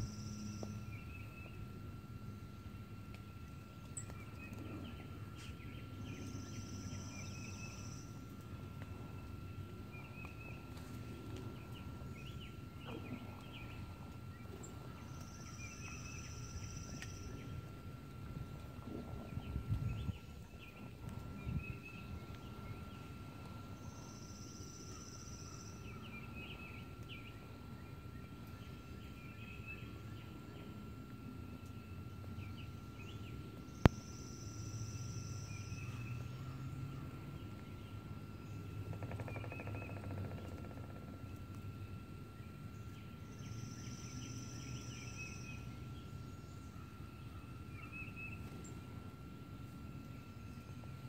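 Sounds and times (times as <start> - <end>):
faint steady high tone: 0.0 - 38.6
songbird chirps: 0.0 - 51.0
songbird trill: 0.0 - 51.0
steady low rumble: 0.0 - 51.0.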